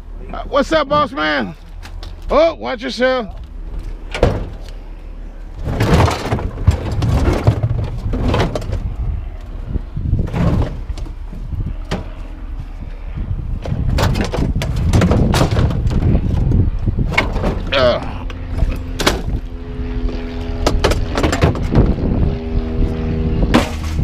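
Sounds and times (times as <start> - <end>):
engine rumbling: 0.0 - 24.0
scrap metal clanking and crashing: 5.6 - 8.8.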